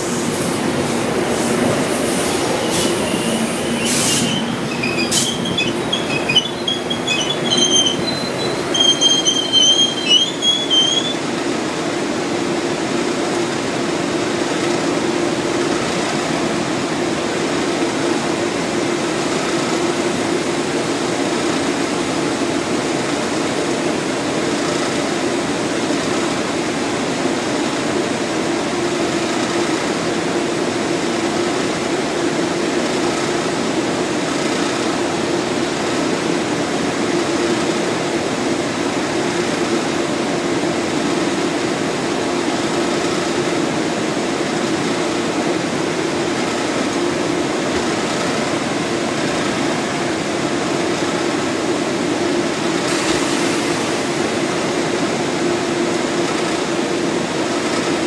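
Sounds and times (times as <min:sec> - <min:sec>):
train clanks: 0:00.0 - 0:11.5
standing train hum: 0:00.0 - 0:58.0
train brakes squealing: 0:01.4 - 0:11.3.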